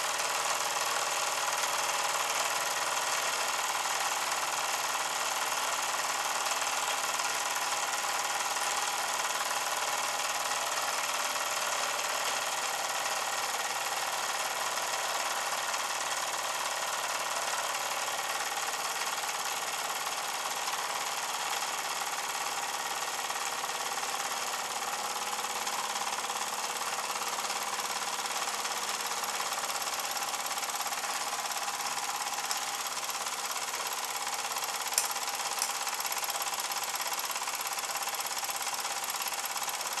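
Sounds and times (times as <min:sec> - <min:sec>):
toy steam engine clattering: 0:25.7 - 0:40.0.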